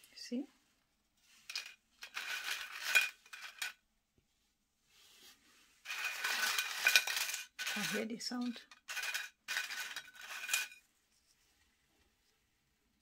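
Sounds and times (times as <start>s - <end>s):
chips clattering on a ceramic plate: 1.5s - 3.8s, 5.9s - 10.8s.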